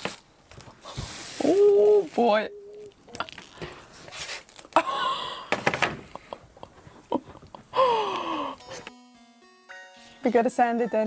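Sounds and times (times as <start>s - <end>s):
rustling and scraping: 0.0s - 2.4s, 3.1s - 4.8s.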